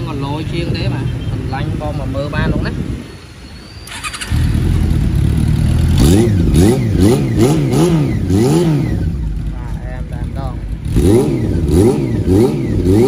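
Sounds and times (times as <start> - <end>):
motorcycle throttle blips: 3.7 - 13.0
motorcycle engine idling: 3.9 - 12.8.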